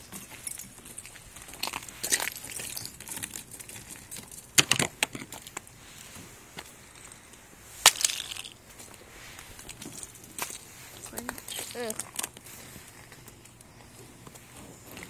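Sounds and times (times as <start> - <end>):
ice cracking and breaking: 7.8 - 8.6
ice shattering on pavement: 7.8 - 8.6.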